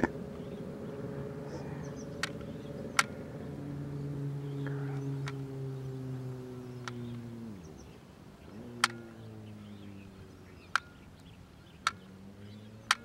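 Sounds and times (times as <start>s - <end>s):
motor droning: 0.0s - 13.0s
sharp clicks: 2.2s - 3.2s, 6.8s - 7.2s, 8.8s - 9.0s, 10.7s - 12.0s.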